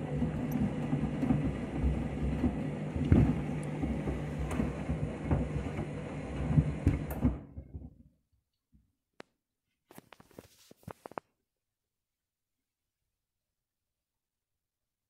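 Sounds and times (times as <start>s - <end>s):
water sloshing in drum: 0.0s - 7.7s
washing machine motor hum: 0.0s - 8.2s
shoes knocking in drum: 2.3s - 5.6s.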